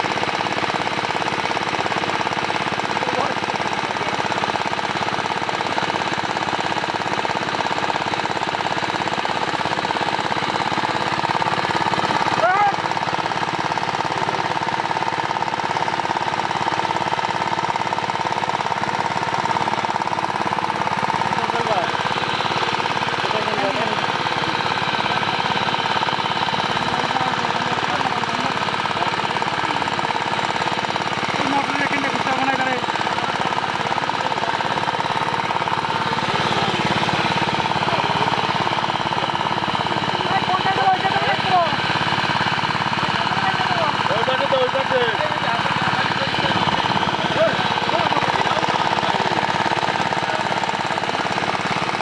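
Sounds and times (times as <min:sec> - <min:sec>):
water pump engine knocking: 0:00.0 - 0:52.0.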